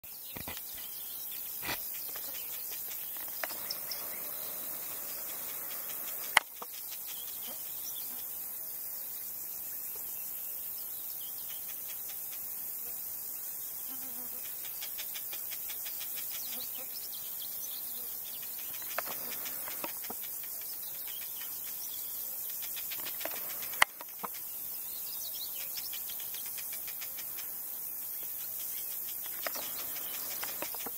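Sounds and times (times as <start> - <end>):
bird chirps: 0.0 - 12.4, 14.5 - 30.9
insect chirring: 0.1 - 30.9.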